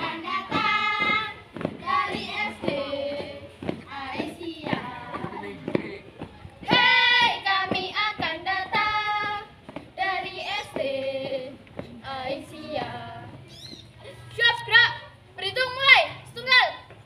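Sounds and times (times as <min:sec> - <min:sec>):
girl singing: 0:00.0 - 0:05.4, 0:06.6 - 0:13.4.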